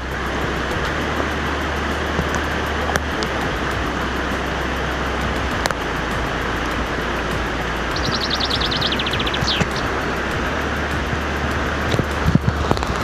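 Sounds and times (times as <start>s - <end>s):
river rushing over boulders: 0.0s - 13.0s.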